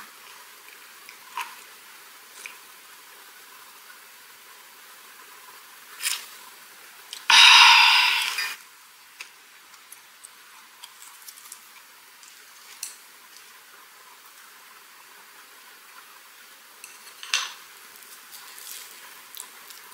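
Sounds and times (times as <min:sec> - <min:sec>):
breathy rush: 0:07.3 - 0:08.6.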